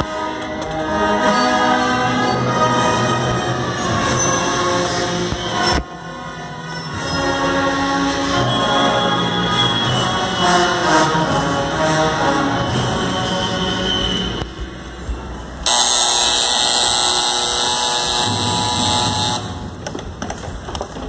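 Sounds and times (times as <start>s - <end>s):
brass band playing march: 9.8s - 13.3s, 15.7s - 19.8s
cymbals crashing: 15.7s - 19.7s.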